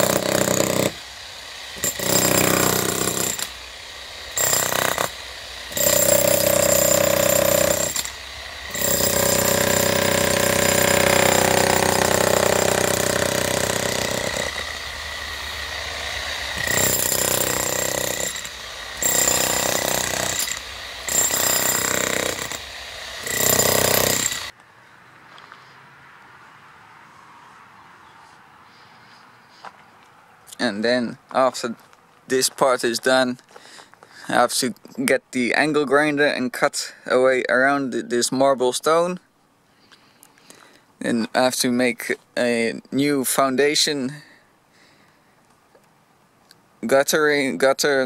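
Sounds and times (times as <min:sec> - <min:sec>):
demolition hammer breaking concrete: 0:00.0 - 0:01.0, 0:01.8 - 0:03.5, 0:04.4 - 0:05.1, 0:05.7 - 0:08.1, 0:08.7 - 0:14.6, 0:16.6 - 0:22.6, 0:23.2 - 0:24.5.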